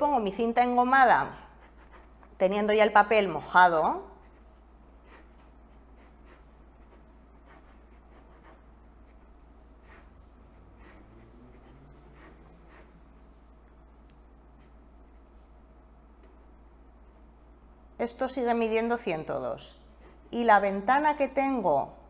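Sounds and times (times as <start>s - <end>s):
pen scratching on paper: 1.5s - 2.4s, 3.4s - 13.8s.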